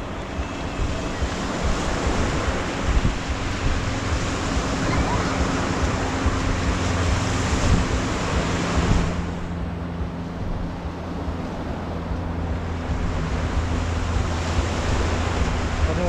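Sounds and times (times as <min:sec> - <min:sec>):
small waves washing on sand: 0:00.0 - 0:09.6, 0:12.6 - 0:16.0
wind buffeting microphone: 0:00.0 - 0:16.0.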